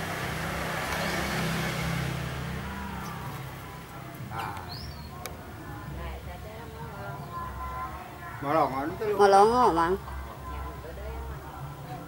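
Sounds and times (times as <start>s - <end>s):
motor vehicle passing: 0.0s - 5.2s.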